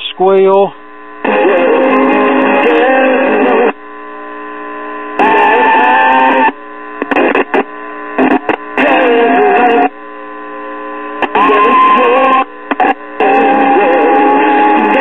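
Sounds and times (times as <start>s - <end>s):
radio programme through speaker: 0.0s - 1.6s
radio hum: 0.0s - 15.0s
radio squealing: 5.2s - 9.9s, 11.2s - 15.0s.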